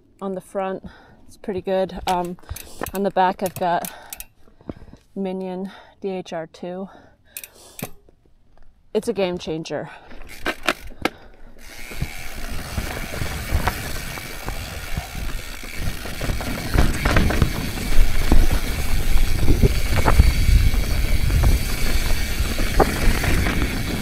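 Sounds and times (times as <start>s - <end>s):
bike rattling: 0.9s - 4.9s, 9.9s - 24.0s
sharp clicks: 2.0s - 4.3s
freehub ratchet ticking: 11.6s - 24.0s
wind rumble on microphone: 11.9s - 24.0s.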